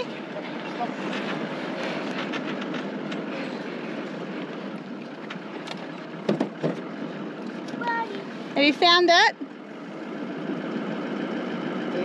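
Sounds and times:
vehicle and trailer rolling on dirt: 0.0 - 12.0
sharp knocks: 6.2 - 6.8.

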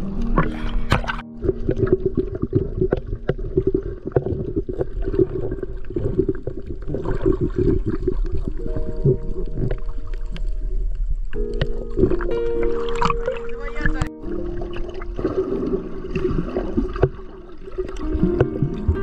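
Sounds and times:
held musical notes: 8.6 - 19.0
water sloshing against boat hull: 11.6 - 19.0
splashes: 11.8 - 19.0.

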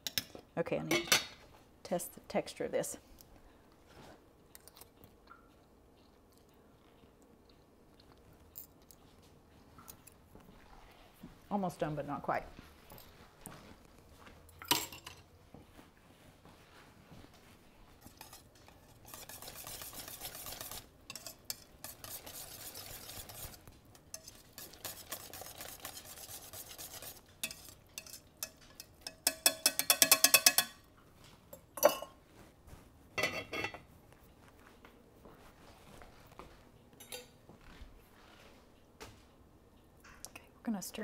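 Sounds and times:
whisk scraping in a saucepan: 18.0 - 30.7
whisk clicking against pot: 18.1 - 30.8.

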